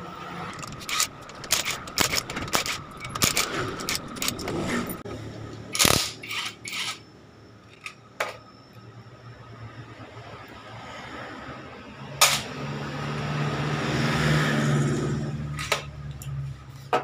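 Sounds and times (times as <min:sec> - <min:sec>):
lone clicks: 0:00.5 - 0:05.0
metal clinks and knocks: 0:00.5 - 0:05.0.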